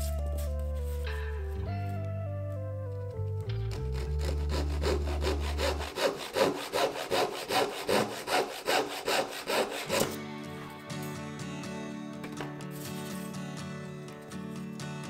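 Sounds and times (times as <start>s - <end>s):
hand saw rasping through wood: 3.8s - 10.2s.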